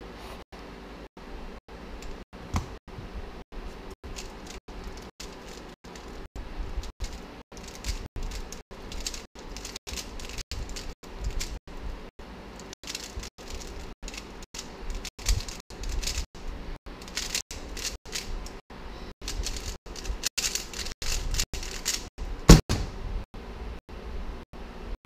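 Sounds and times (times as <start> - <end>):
plastic puzzle cube clacking: 7.0 - 11.5, 17.1 - 18.3, 19.3 - 22.1.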